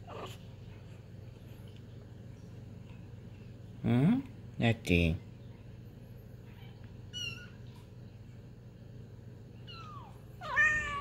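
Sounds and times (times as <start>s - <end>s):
cats mewing: 9.6s - 11.0s.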